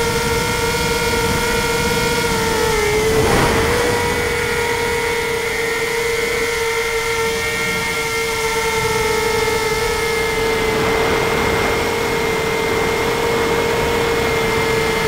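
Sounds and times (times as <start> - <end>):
electric motors and propellers whining: 0.0 - 15.0
wind buffeting microphone: 0.0 - 15.0.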